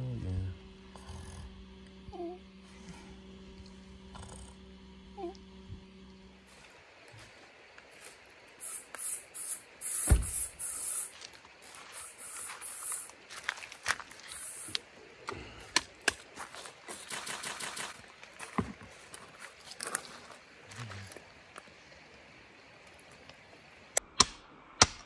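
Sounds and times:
aerosol spray hissing: 8.6 - 13.2, 14.3 - 14.8
thump: 10.0 - 10.5
quick ticks: 17.0 - 18.0
scattered clicks: 17.0 - 18.0.

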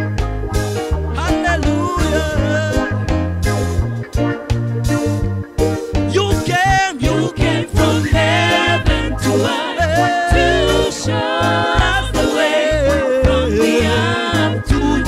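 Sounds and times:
reggae gospel band playing: 0.0 - 15.0
lead singer and backing vocals: 6.2 - 15.0.

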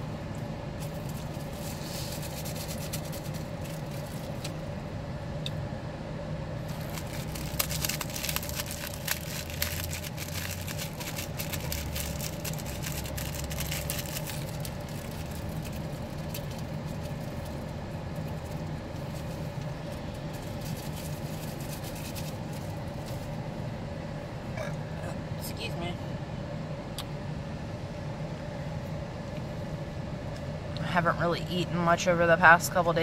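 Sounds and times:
car engine idling: 0.0 - 25.7
plastic packets crinkling: 0.8 - 4.6, 6.7 - 23.3.

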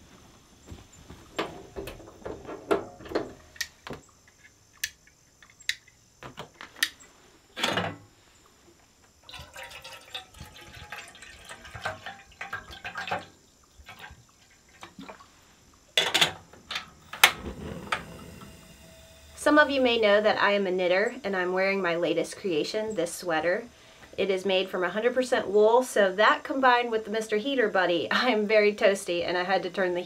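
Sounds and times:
water being poured: 9.2 - 15.4.

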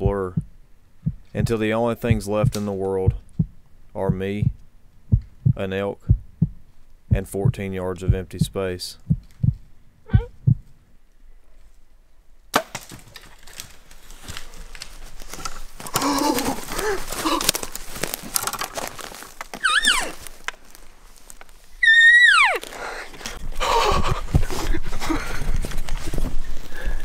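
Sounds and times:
branches snapping: 12.5 - 21.7
elk crashing through brush: 12.5 - 21.7
high squealing calls: 19.6 - 20.2, 21.8 - 23.1.

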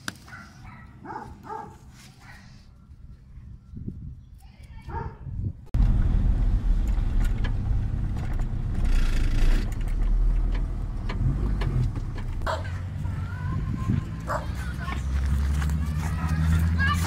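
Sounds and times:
car engine rumbling: 5.7 - 17.0
tyres rolling on dirt road: 5.8 - 17.0.

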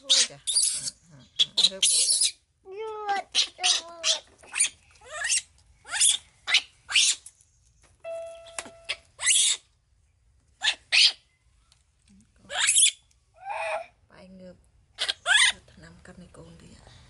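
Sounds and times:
baby monkey squealing: 0.0 - 2.4, 3.1 - 7.2, 8.9 - 9.7, 10.6 - 11.2, 12.5 - 13.8, 15.0 - 15.6.

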